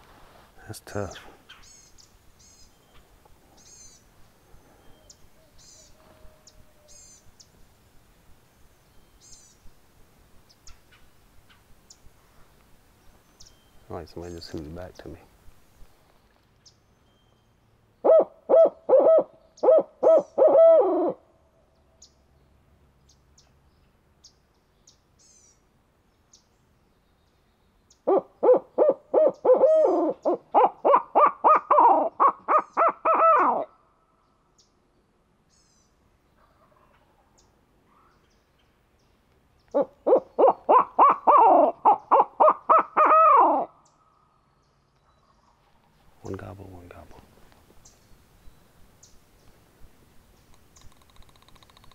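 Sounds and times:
owl hooter call rapid hoots: 18.0 - 21.2, 28.0 - 33.8, 39.7 - 43.8.

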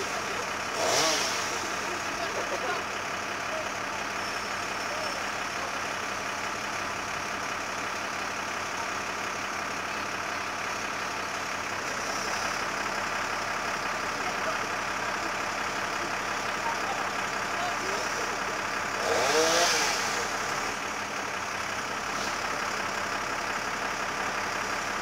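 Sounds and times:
diesel engine idling: 0.0 - 25.0.

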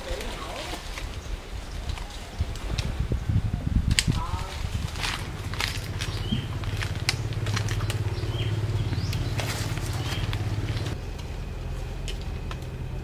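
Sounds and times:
leaves and twigs crackling: 0.0 - 3.2, 3.8 - 13.0
motor engine humming: 4.6 - 13.0.

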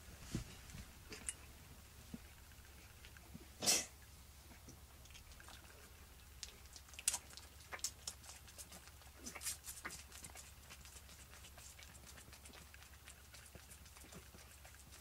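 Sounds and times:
goat kid sucking from bottle: 5.2 - 15.0.

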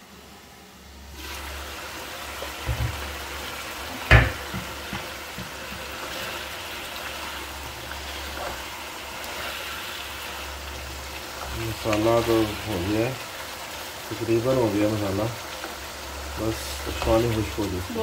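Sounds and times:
stew bubbling and sizzling in wok: 0.0 - 18.0
soft thumps: 2.7 - 3.1.

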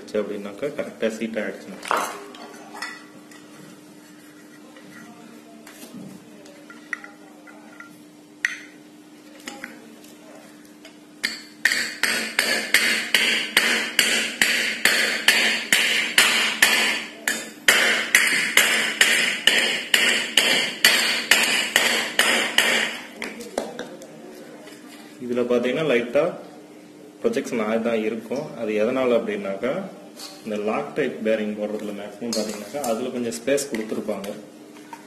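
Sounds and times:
wooden mallet tapping metal: 11.2 - 23.0.

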